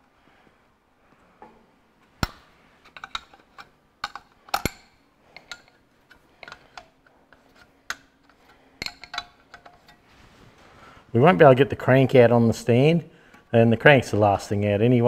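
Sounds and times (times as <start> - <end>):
spanner clinking on metal fittings: 2.8 - 10.0.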